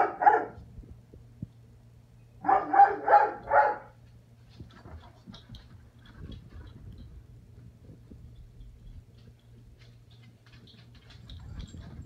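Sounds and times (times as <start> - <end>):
puppy barking: 0.0 - 0.6, 2.4 - 4.0.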